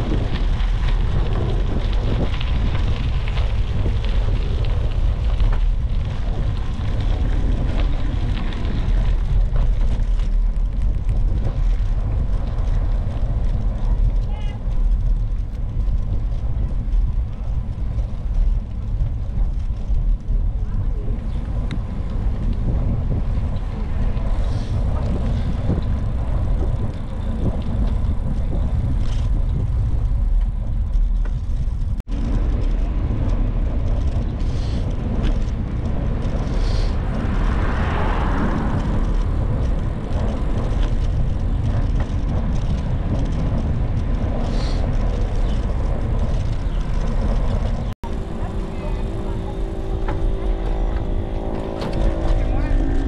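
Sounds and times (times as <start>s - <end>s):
traffic: 0.0s - 53.0s
wind and road noise rumble: 0.0s - 53.0s
vehicle passing: 35.0s - 42.0s, 45.8s - 53.0s.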